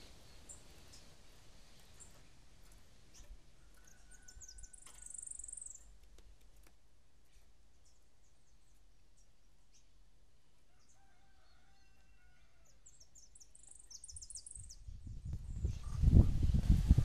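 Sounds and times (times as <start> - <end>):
finch chirping: 12.9 - 14.8.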